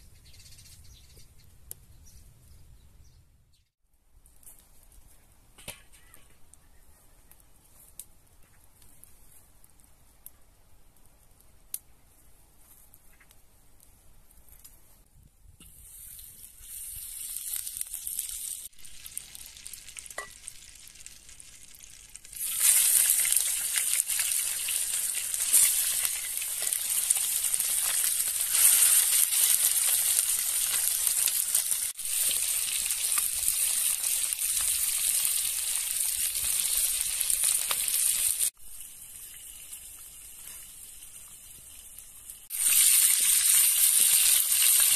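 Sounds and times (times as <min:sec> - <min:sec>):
chicken frying in hot oil: 0:15.6 - 0:44.9.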